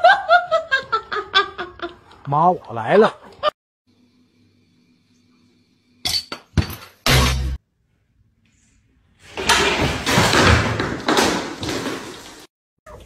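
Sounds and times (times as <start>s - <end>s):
household objects clattering: 9.3s - 12.5s.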